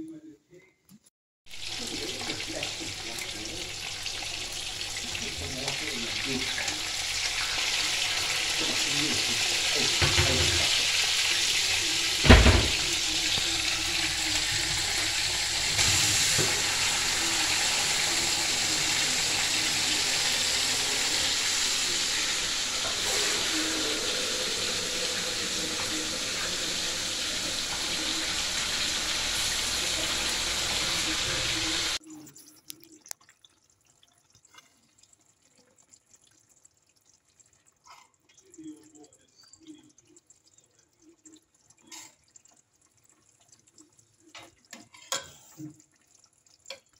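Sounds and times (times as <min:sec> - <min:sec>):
fish sizzling in hot oil: 0:01.5 - 0:32.0.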